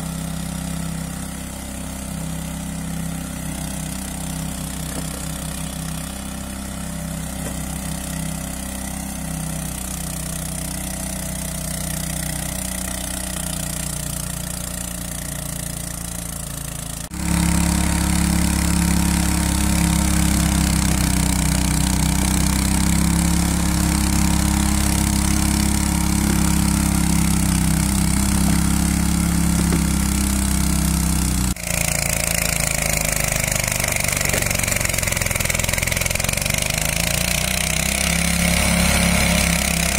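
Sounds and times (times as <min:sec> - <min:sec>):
small petrol engines running: 0:00.0 - 0:39.9.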